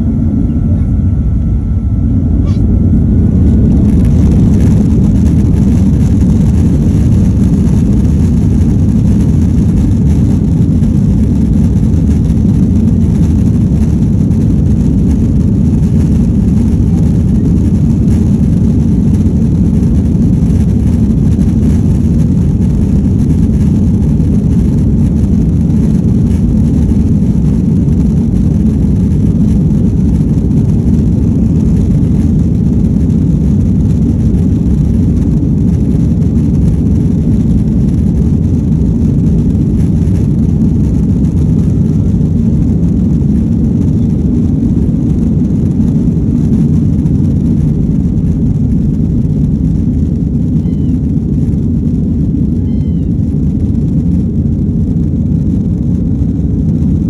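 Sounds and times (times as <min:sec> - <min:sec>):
jet engines rumbling in cabin: 0:00.0 - 0:57.0.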